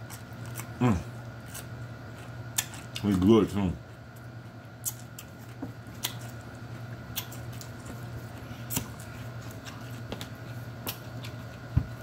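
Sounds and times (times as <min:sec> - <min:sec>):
steady low hum: 0:00.0 - 0:12.0
wet chewing of raw vegetables: 0:00.0 - 0:12.0.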